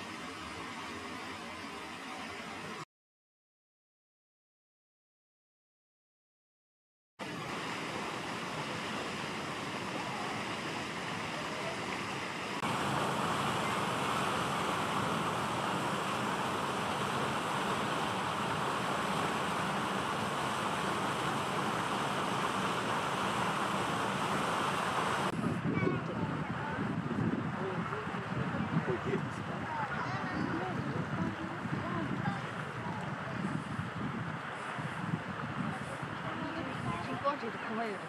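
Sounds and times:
wind on microphone: 12.6 - 37.4.

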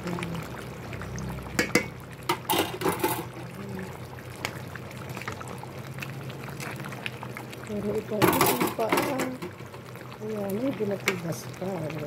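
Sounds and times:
utensil clinking on metal pot: 1.6 - 3.3, 8.2 - 9.6.

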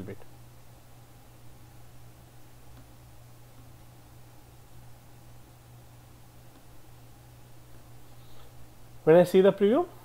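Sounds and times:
faint hiss: 6.4 - 10.0.

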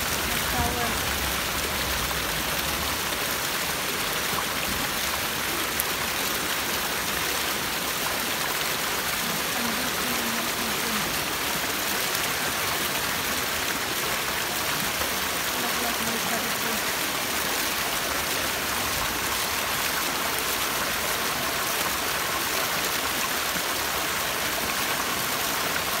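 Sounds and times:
fountain water splashing: 0.0 - 26.0.

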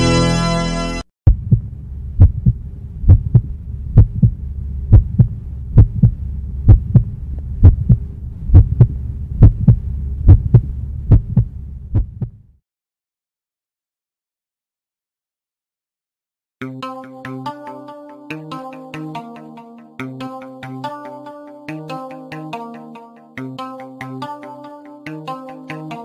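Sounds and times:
heartbeat double thump: 1.3 - 12.4
low hum: 1.3 - 12.6.

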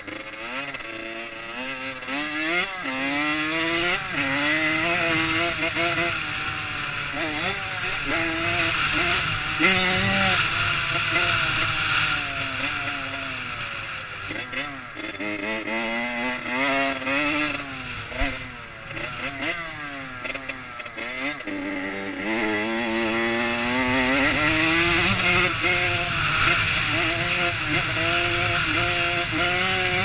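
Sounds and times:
dirt bike engine revving: 0.0 - 30.0.

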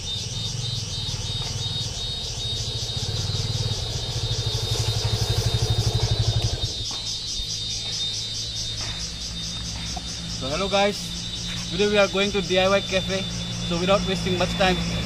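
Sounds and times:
insects chirping: 0.0 - 15.0
motorcycle engine running: 0.0 - 15.0.

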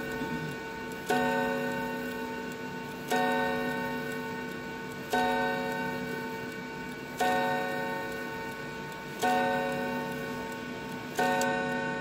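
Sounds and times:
clock chime rod strikes: 0.0 - 12.0
faint clock ticking: 0.0 - 12.0.

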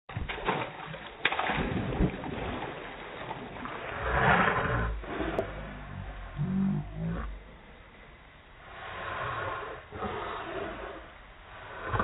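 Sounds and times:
slowed-down water sloshing: 0.1 - 12.0.

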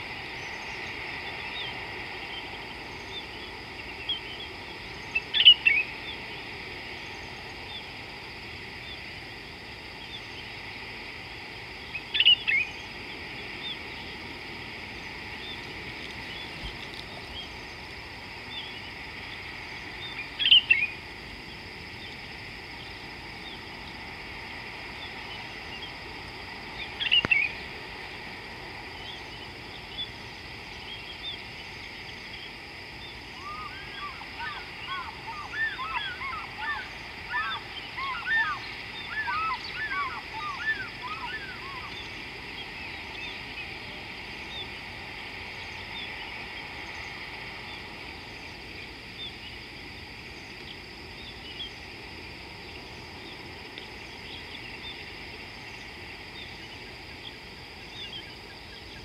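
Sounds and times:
steady high hiss: 0.0 - 59.0
faint bird chirps: 0.4 - 6.2, 11.8 - 14.1, 20.0 - 21.0, 26.8 - 27.6, 30.8 - 44.8
bird calling with falling notes: 33.4 - 42.0.

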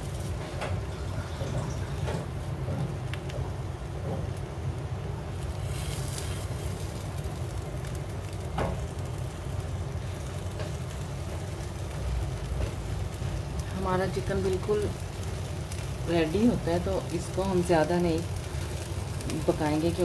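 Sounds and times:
faint sizzling: 0.0 - 20.0
low rumble of gas stove: 0.0 - 20.0
scrape in frying pan: 5.5 - 6.9.

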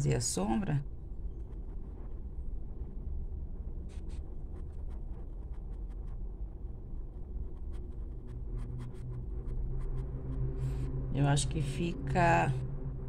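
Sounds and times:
steady low hum: 0.0 - 13.0
paintbrush scratching on canvas: 1.2 - 2.6, 3.9 - 10.6.

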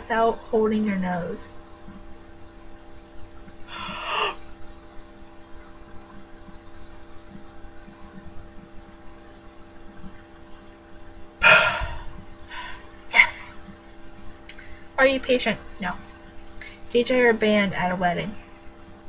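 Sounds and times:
steady electrical hum: 0.0 - 19.0
person breathing in: 3.7 - 4.4, 11.4 - 12.9
person gasping loudly: 3.7 - 4.4, 11.4 - 12.8.

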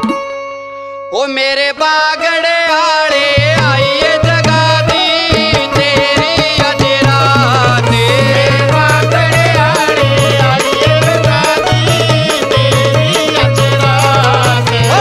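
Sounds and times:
ornamented melody: 0.0 - 1.6
quick drum beat: 4.3 - 15.0.

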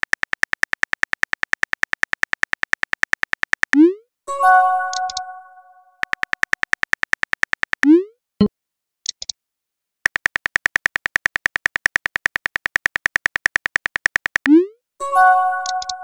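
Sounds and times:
phone keyboard typing clicks: 0.0 - 3.8, 4.8 - 5.3, 6.0 - 8.0, 10.0 - 14.6, 15.5 - 16.0.

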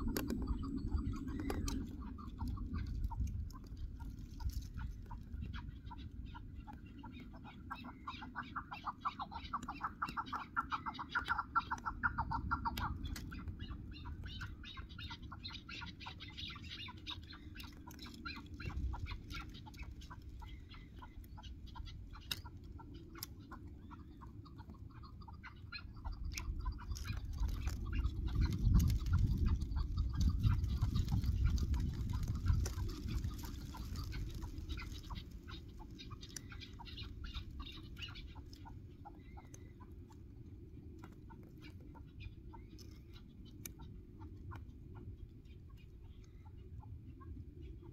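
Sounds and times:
low rumble: 0.0 - 6.6.

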